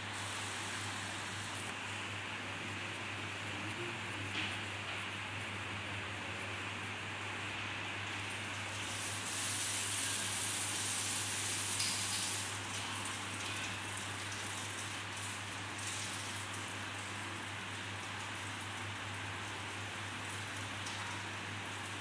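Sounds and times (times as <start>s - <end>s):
steady hiss: 0.0s - 1.8s, 8.7s - 12.6s.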